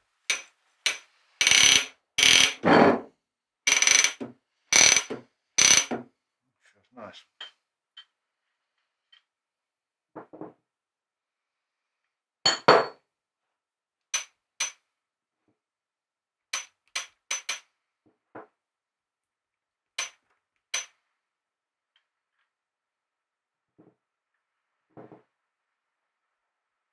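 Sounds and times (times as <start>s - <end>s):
metallic clinks and knocks: 0.3s - 2.7s, 3.7s - 6.0s, 16.6s - 17.7s.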